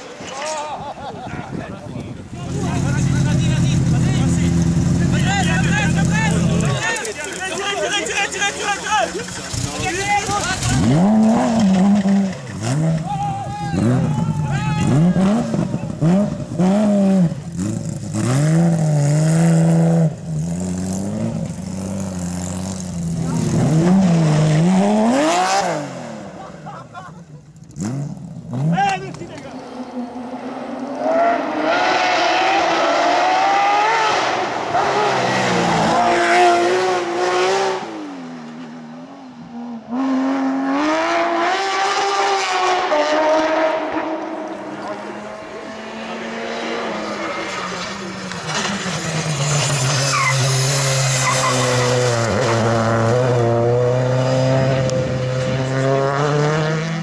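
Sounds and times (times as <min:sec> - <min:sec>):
car engine revving hard: 0:10.6 - 0:13.0, 0:14.8 - 0:26.4, 0:29.5 - 0:38.3, 0:39.9 - 0:57.0.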